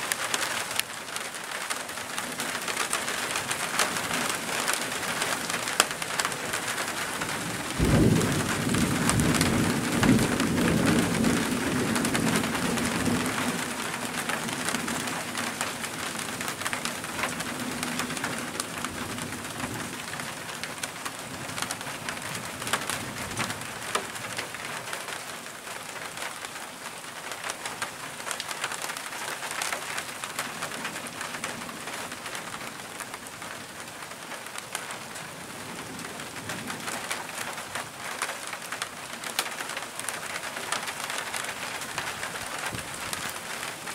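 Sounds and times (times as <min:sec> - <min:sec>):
steady rain: 0:00.0 - 0:43.9
thunder clap and rumble: 0:07.2 - 0:15.2.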